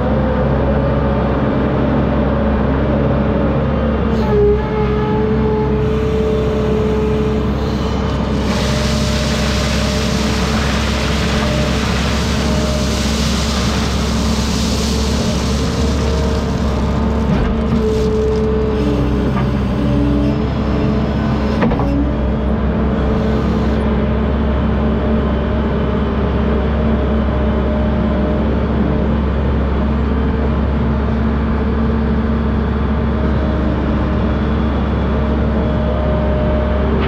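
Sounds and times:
diesel engine running: 0.0s - 37.0s
hiss: 8.4s - 16.7s.

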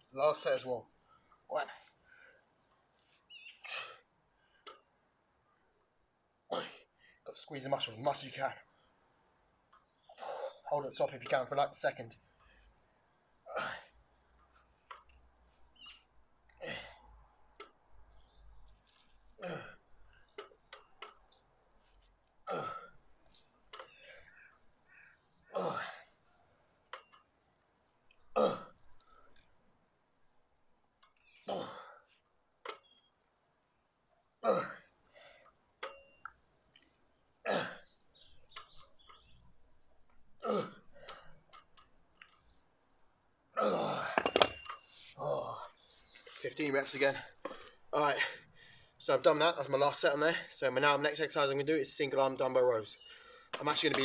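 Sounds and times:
man exhaling with grunt: 43.6s - 44.2s
metallic dumbbell clinks: 44.1s - 44.8s.

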